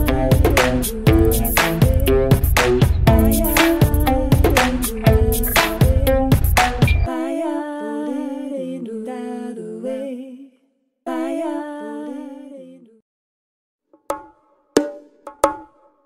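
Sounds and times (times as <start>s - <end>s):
background music beat: 0.0s - 7.1s.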